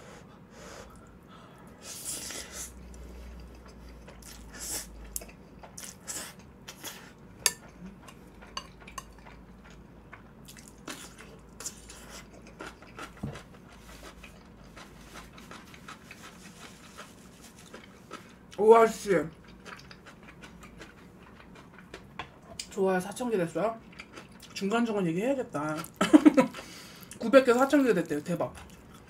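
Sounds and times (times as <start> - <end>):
wet mouth eating sounds: 1.9 - 7.1, 7.7 - 18.6.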